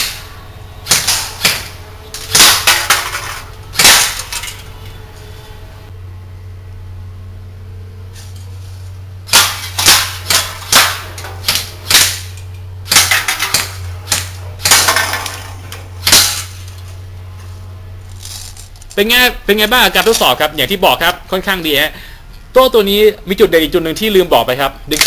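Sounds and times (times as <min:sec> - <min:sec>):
steady low hum: 0:00.0 - 0:25.0
airsoft rifle firing: 0:00.8 - 0:03.0, 0:09.3 - 0:15.1
pellets hitting metal cans: 0:00.9 - 0:04.7, 0:09.3 - 0:16.7.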